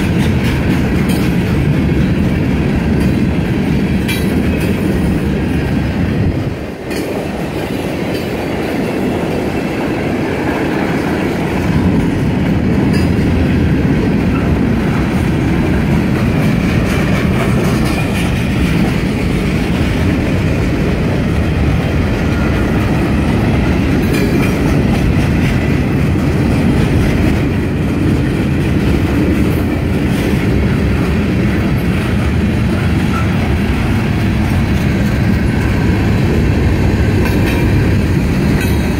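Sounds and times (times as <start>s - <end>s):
clickety-clack over rail joints: 0.0s - 38.9s
freight train wheels rumbling: 0.0s - 38.9s.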